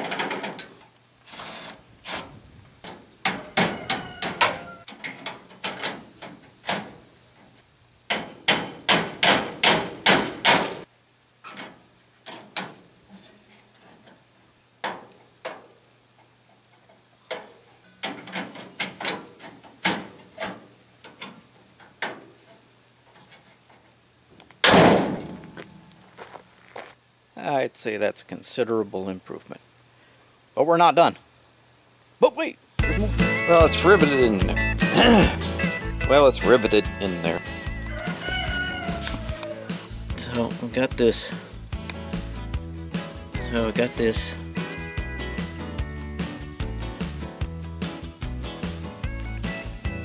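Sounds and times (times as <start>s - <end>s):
car hood slamming: 24.6s - 25.4s.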